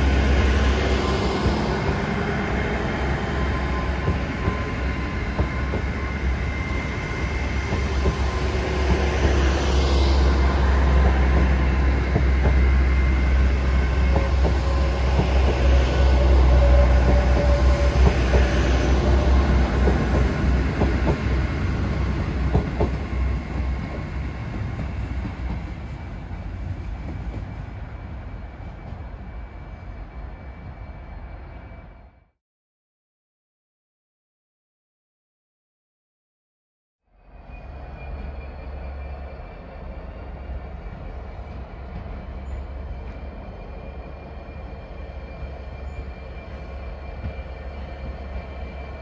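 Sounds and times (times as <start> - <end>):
diesel train engine hum: 0.0 - 32.2.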